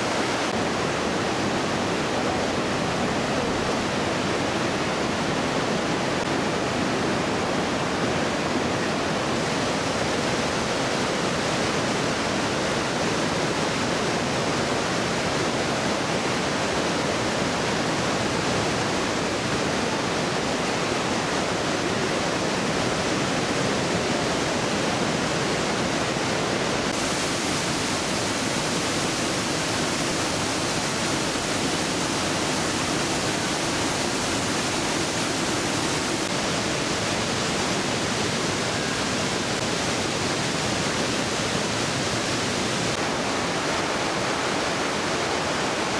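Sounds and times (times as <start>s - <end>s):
river rushing through gorge: 0.0s - 45.9s
waterfall spray hissing: 26.8s - 45.9s.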